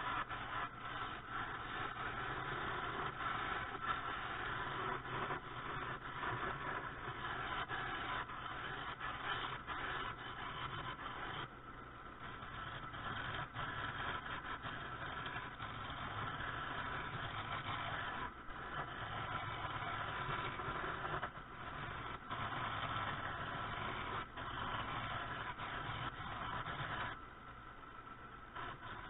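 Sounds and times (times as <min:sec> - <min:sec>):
gouge scraping wood: 0:00.0 - 0:11.5, 0:12.4 - 0:27.2
lathe motor hum: 0:12.2 - 0:27.2.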